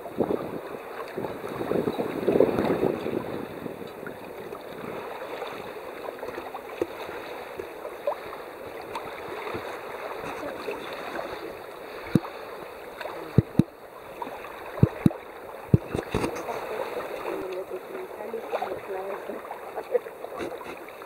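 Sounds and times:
water rushing along hull: 0:00.0 - 0:21.0.

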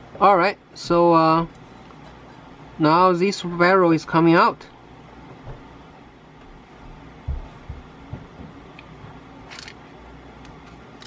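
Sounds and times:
soft handling bumps: 0:06.4 - 0:09.3.

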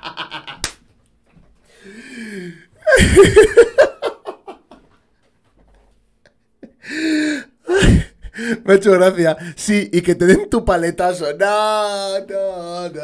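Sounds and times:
man laughing: 0:00.0 - 0:00.7, 0:02.8 - 0:04.9, 0:06.2 - 0:08.6.

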